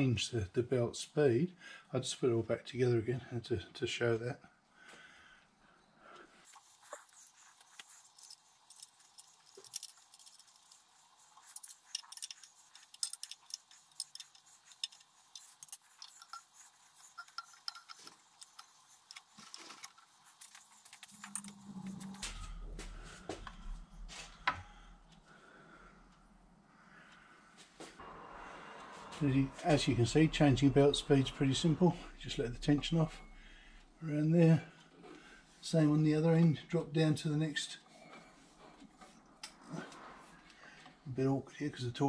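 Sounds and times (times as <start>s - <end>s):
steady low hum: 5.6s - 35.8s
small metal parts clicking: 6.5s - 22.2s.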